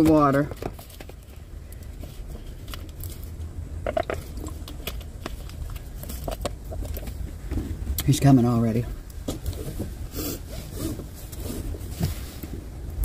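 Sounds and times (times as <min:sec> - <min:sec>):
plastic bottle crinkling: 0:00.0 - 0:07.4
person swallowing: 0:03.8 - 0:04.6.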